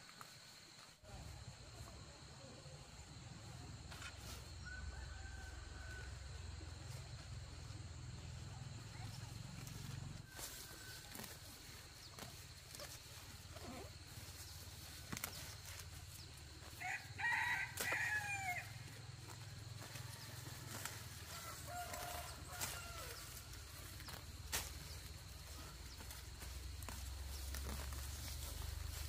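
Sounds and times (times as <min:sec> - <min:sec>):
rooster crowing: 0:04.6 - 0:06.3, 0:16.7 - 0:18.8, 0:19.8 - 0:23.5.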